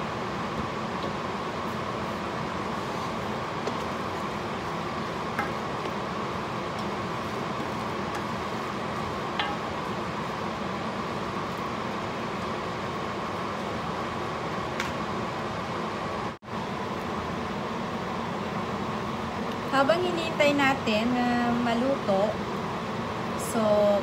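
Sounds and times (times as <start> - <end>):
wooden spoon knocking on pot: 9.3 - 9.8.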